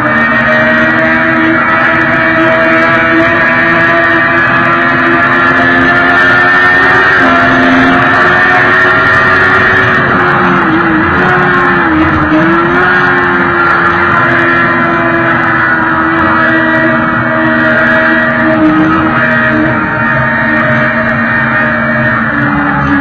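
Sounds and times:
motorcycle engine at high revs: 0:00.0 - 0:23.0.

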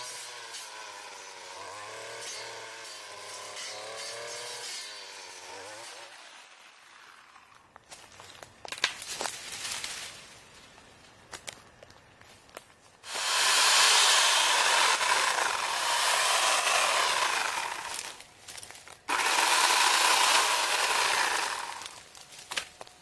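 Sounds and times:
electric chainsaw cutting wood: 0:00.0 - 0:07.5, 0:13.0 - 0:18.2, 0:19.1 - 0:22.1.

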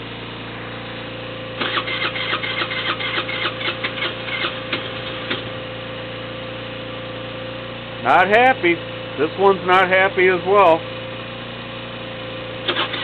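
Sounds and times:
moped engine idling: 0:00.0 - 0:13.0
moped engine starting roughly: 0:01.5 - 0:05.6, 0:12.6 - 0:13.0.

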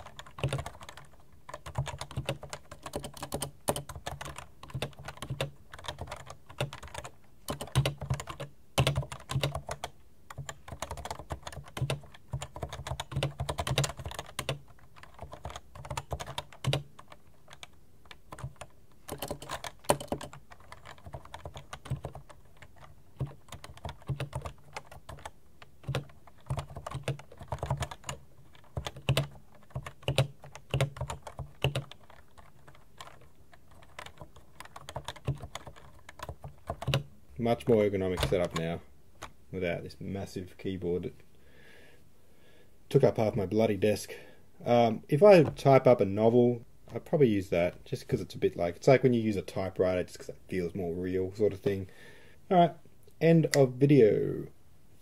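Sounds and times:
keyboard typing: 0:00.0 - 0:37.1.

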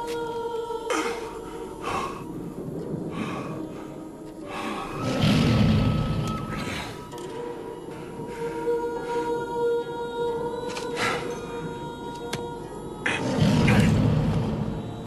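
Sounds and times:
heavy breathing: 0:00.9 - 0:05.3.

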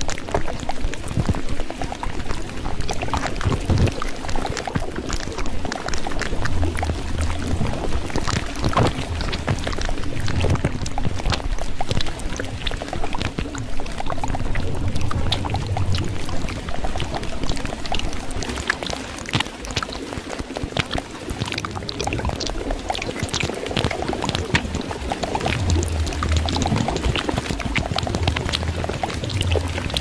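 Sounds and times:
water pouring and splashing: 0:00.0 - 0:30.0
low rumble: 0:06.2 - 0:11.6, 0:14.1 - 0:17.9, 0:24.6 - 0:30.0.

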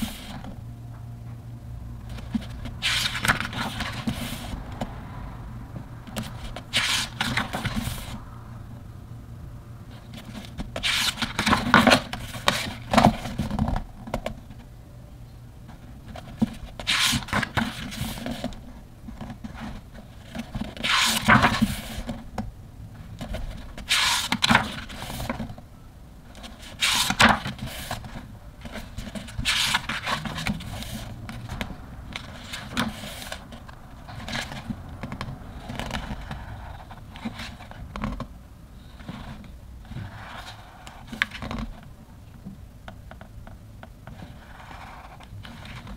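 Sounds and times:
pages turning rustle: 0:02.1 - 0:04.9, 0:06.1 - 0:08.2, 0:09.9 - 0:14.4, 0:16.0 - 0:22.2, 0:23.2 - 0:25.6, 0:26.4 - 0:38.3.

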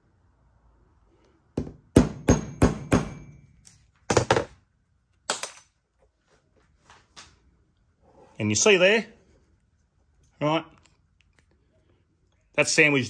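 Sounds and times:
hammer striking metal punch: 0:01.6 - 0:04.4.

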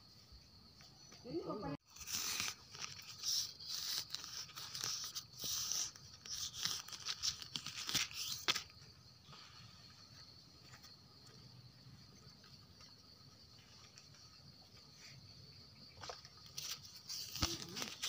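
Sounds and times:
faint high insect buzz: 0:00.0 - 0:18.0
dry leaves rustling and crunching: 0:17.1 - 0:18.0.

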